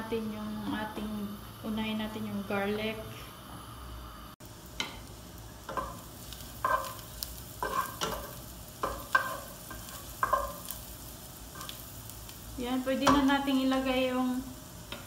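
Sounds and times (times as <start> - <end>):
garlic sizzling in butter: 0.1 - 15.0
spatula scraping pan: 5.7 - 10.8.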